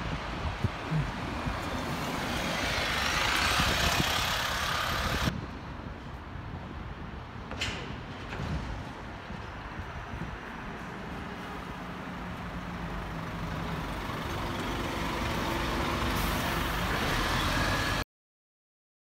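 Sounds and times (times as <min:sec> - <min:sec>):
bus engine pulling away: 0:00.0 - 0:05.3, 0:08.6 - 0:18.0.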